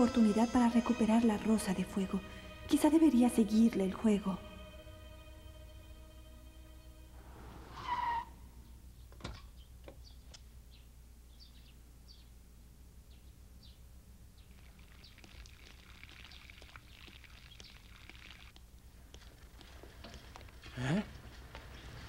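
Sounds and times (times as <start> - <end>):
faint birds chirping: 8.0 - 22.0.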